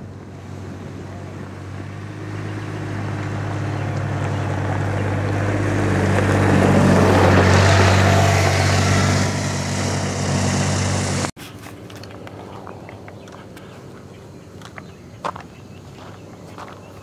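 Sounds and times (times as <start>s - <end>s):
vehicle engine passing: 0.0s - 11.4s.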